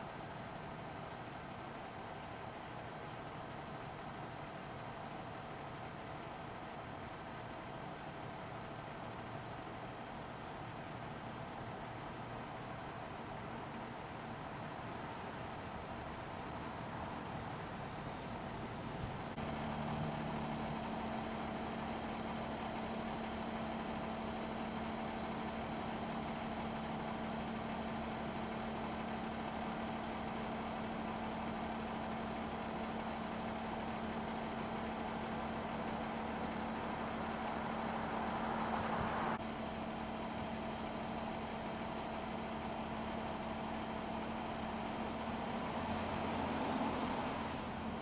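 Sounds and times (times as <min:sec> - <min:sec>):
engine idling: 0:00.0 - 0:48.0
street traffic passing: 0:35.6 - 0:39.6, 0:44.8 - 0:48.0.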